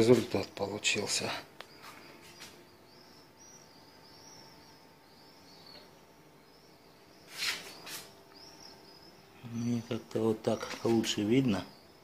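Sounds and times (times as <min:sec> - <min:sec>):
close rustling: 0:07.2 - 0:08.3.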